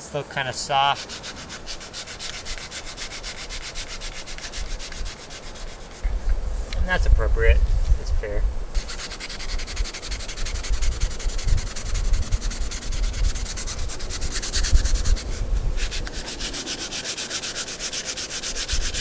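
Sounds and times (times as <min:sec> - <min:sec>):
sandpaper rubbing on metal: 0:00.5 - 0:06.2, 0:08.7 - 0:19.0.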